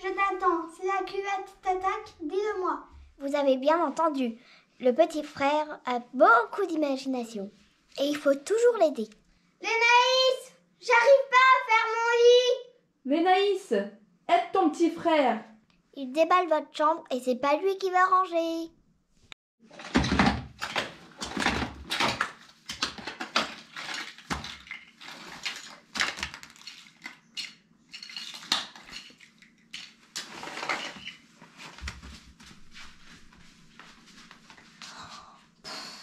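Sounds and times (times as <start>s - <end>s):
plastic toys clattering: 19.7s - 31.2s.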